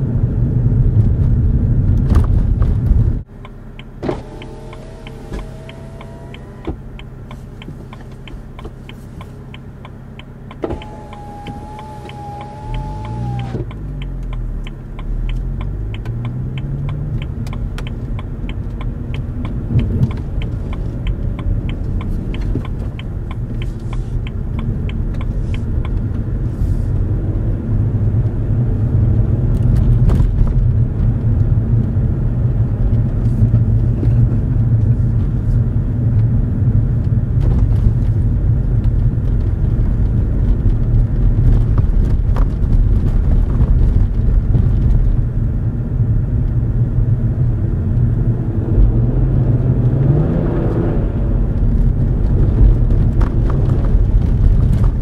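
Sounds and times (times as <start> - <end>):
car engine accelerating: 0.0 - 55.0
tyres on snowy road: 0.0 - 55.0
turn signal relay ticking: 3.2 - 28.3.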